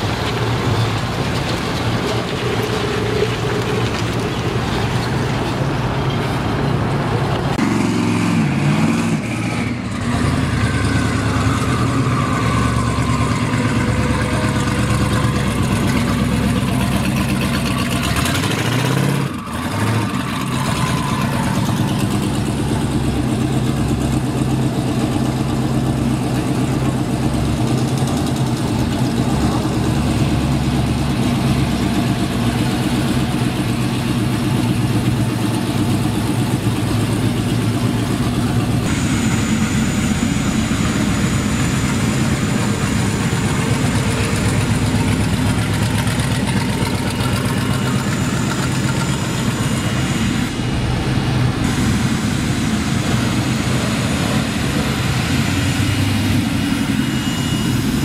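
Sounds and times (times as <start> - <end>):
car engine idling: 9.7 - 58.0
broad rushing noise: 25.9 - 58.0.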